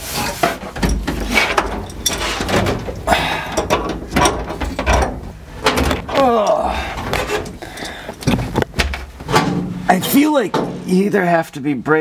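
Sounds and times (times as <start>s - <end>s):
hand tools clicking on metal: 0.8s - 8.7s.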